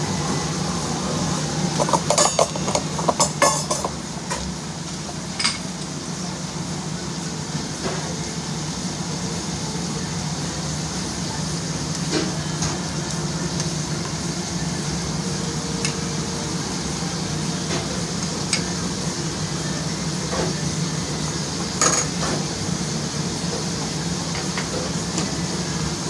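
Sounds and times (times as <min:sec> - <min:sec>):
low machine hum: 0:00.0 - 0:26.0
dishes and utensils clinking: 0:01.8 - 0:04.4, 0:05.4 - 0:05.6, 0:21.8 - 0:22.4.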